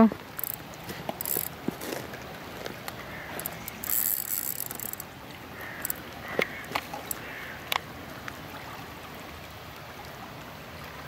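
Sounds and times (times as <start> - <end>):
spinning reel gears whirring: 0.3 - 1.6, 3.3 - 6.0, 6.6 - 7.2.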